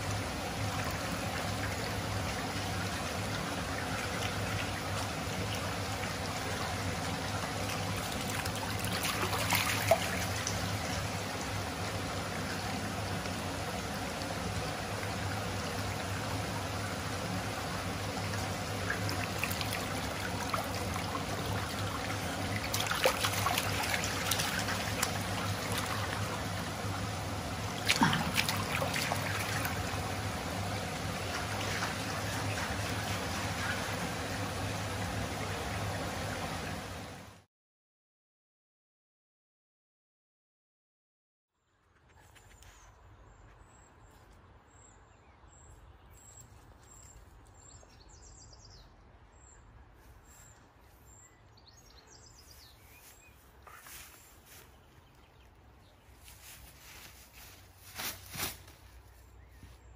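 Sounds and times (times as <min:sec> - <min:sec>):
water splashes: 0:00.0 - 0:37.4
stream water flowing: 0:00.0 - 0:37.5.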